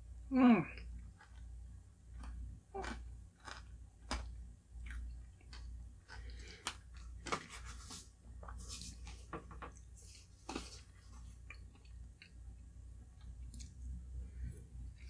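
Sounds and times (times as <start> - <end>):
chewing shaved ice: 0.9 - 7.5.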